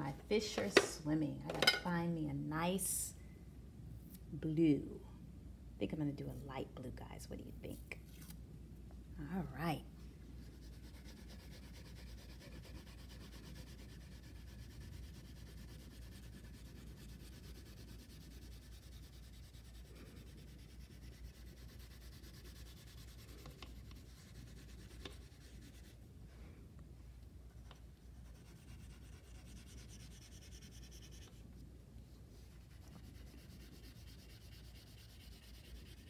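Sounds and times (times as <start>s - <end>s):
crayon scratching on paper: 10.4s - 26.0s, 28.1s - 31.4s, 32.4s - 36.0s.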